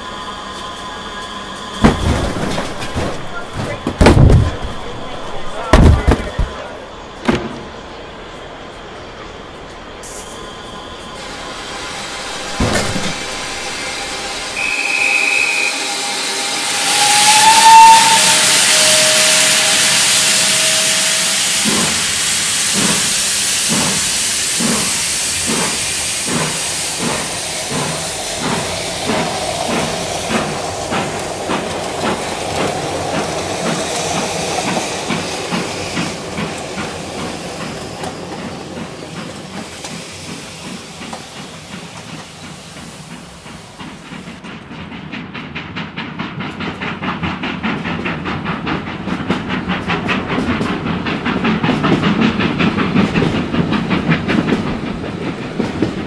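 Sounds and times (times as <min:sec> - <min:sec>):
steam hissing: 0:07.9 - 0:56.0
steam locomotive whistle: 0:10.0 - 0:31.2
locomotive exhaust chuffs: 0:10.0 - 0:56.0.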